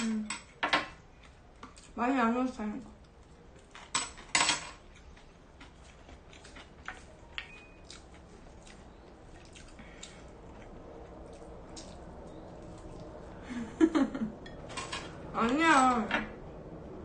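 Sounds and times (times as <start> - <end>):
soft chewing: 0.4 - 2.0, 2.8 - 13.4.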